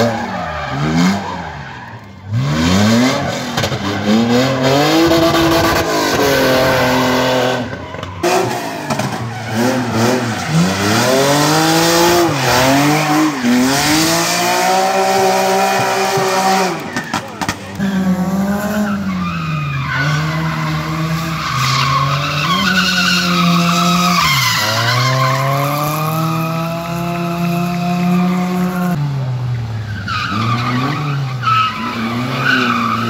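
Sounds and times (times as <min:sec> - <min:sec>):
car engine revving hard: 0:02.3 - 0:19.0
tyres squealing: 0:14.5 - 0:26.4.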